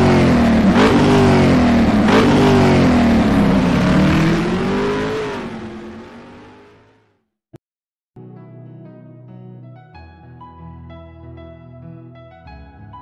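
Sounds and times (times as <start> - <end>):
car engine revving: 0.0 - 7.2.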